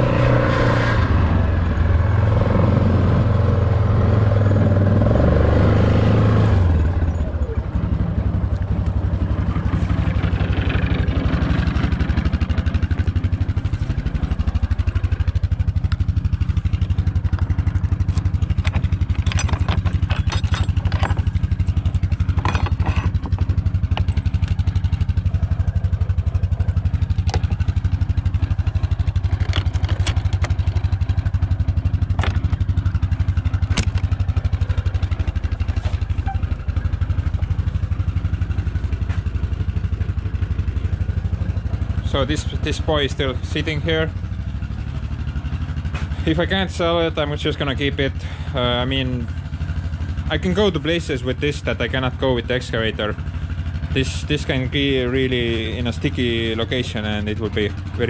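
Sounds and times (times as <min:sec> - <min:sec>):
quad bike engine running: 0:00.0 - 0:58.0
sharp knocks and rattles: 0:08.9 - 0:42.8.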